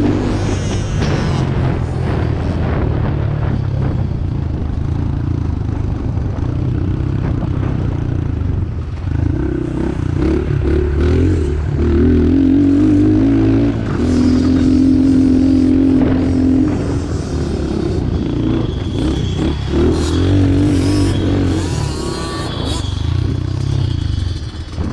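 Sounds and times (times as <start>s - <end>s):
dirt bike engine revving: 0.0s - 3.6s, 9.1s - 24.9s.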